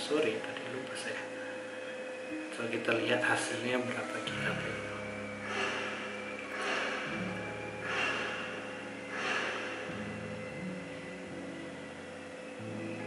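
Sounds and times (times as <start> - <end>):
person breathing close to microphone: 5.4 - 10.6.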